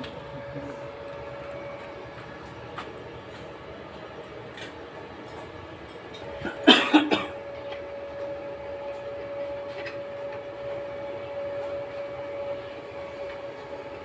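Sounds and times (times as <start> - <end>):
steady background hum: 0.0 - 14.0
person coughing: 6.4 - 7.4.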